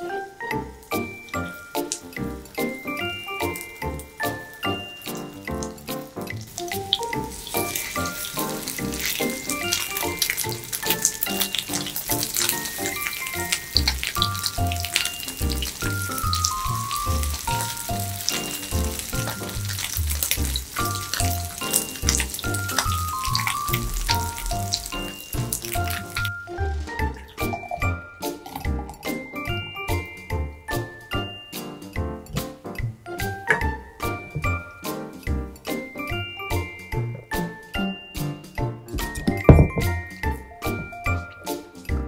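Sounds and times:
food sizzling in oil: 0.0s - 32.0s
light background music: 0.0s - 42.0s.

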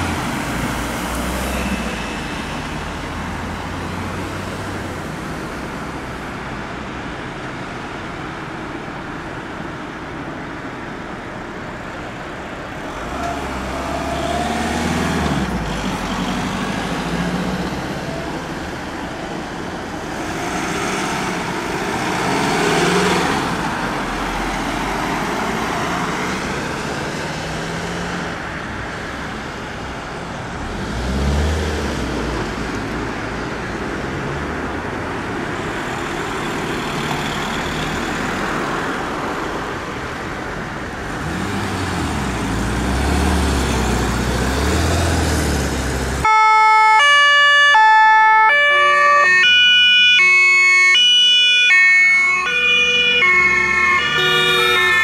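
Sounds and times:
vehicles driving past: 0.0s - 55.0s
two-tone siren: 46.2s - 55.0s.

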